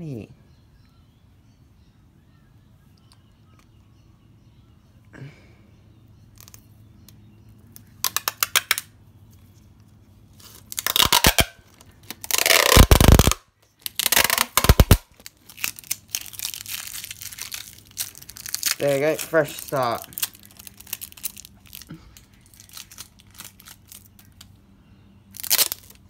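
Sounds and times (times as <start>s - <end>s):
packing tape ripping off roll: 7.8s - 8.9s, 10.4s - 24.5s, 25.4s - 26.0s.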